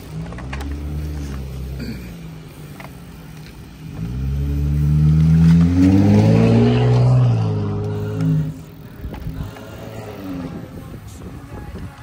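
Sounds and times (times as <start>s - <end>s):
motor vehicle passing by: 3.8s - 11.0s.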